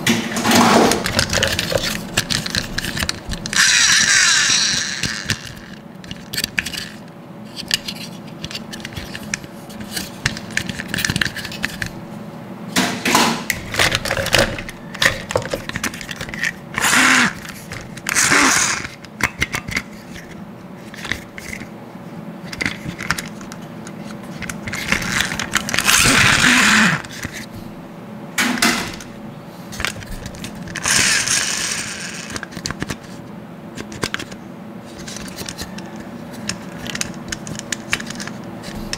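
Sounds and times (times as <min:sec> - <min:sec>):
plastic parts clicking and rattling: 0:00.4 - 0:11.9, 0:13.6 - 0:21.7, 0:22.4 - 0:27.5, 0:29.7 - 0:33.2, 0:33.8 - 0:38.9
plastic toy scraping: 0:00.6 - 0:11.9, 0:15.0 - 0:19.0, 0:24.0 - 0:27.5, 0:29.9 - 0:33.2.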